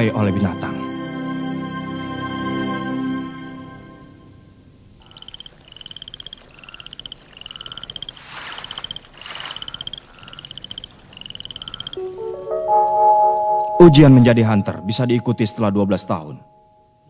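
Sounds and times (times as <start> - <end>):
frog calling in pulsed trills: 5.0 - 13.8.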